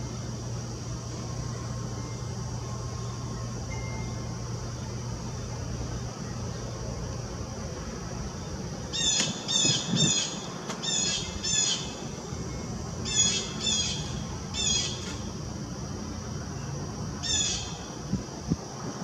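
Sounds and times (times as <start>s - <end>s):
low background hum: 0.0s - 19.0s
bird calling: 8.9s - 12.2s, 13.0s - 15.2s.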